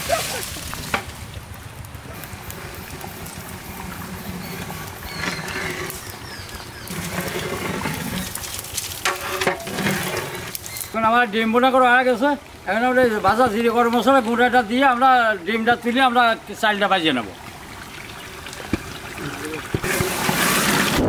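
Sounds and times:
ladle scraping and knocking pot: 6.9s - 8.4s, 9.0s - 10.8s, 18.7s - 21.0s.

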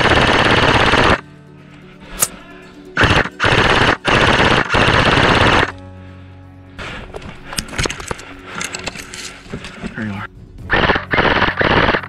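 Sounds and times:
airsoft rifle full-auto bursts: 0.0s - 1.2s, 3.0s - 5.7s, 10.7s - 12.0s.

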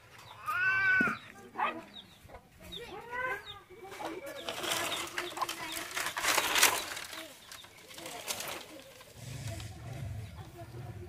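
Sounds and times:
dry branches rustling and crackling: 3.9s - 10.6s.

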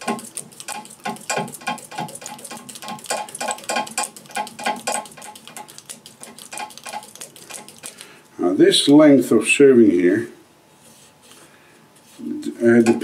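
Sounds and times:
serving tool clicking and rattling: 0.0s - 8.0s.

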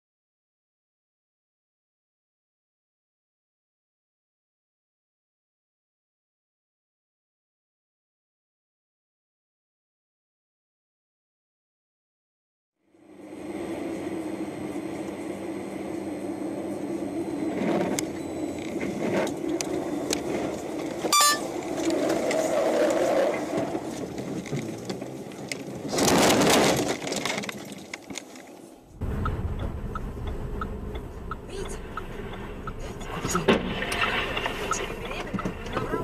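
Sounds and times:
car engine and road drone: 12.8s - 36.0s
low car cabin rumble: 28.8s - 36.0s.

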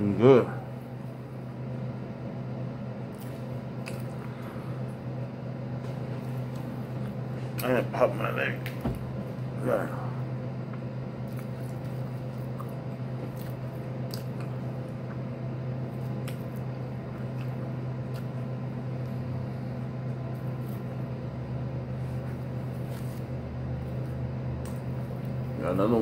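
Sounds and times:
steady low hum: 0.0s - 26.0s
chewing a sandwich: 2.9s - 7.7s, 9.9s - 25.6s.

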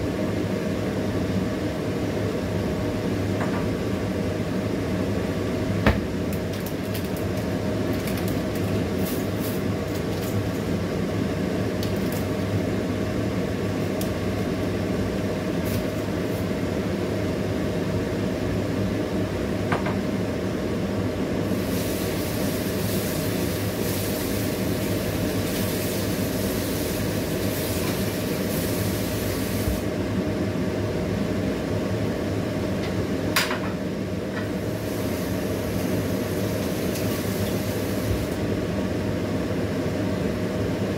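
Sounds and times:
gas stove hum: 0.0s - 40.9s
bright hiss: 21.5s - 29.9s, 34.6s - 38.4s.

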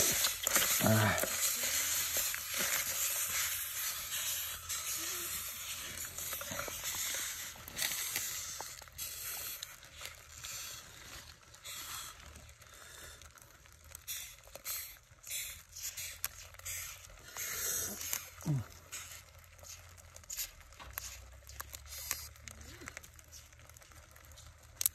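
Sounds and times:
spoon stirring in wooden mortar: 0.0s - 12.6s
small clicks and crackles: 0.0s - 24.9s.

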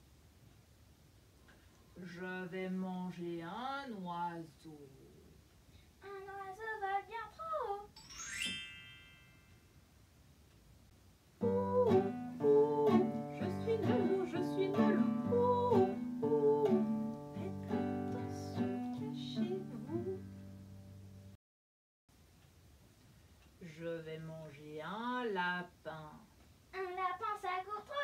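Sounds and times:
classical guitar strummed: 11.4s - 21.3s.

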